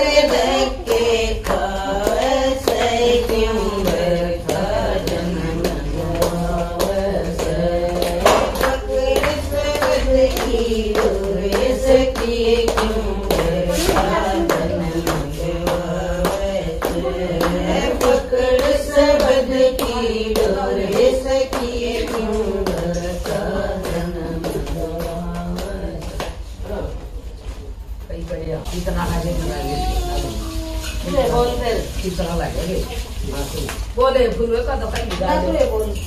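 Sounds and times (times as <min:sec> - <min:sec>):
rhythmic hand-clapping: 0:00.0 - 0:26.6
women singing together: 0:00.0 - 0:27.0, 0:30.9 - 0:32.8, 0:34.0 - 0:36.0.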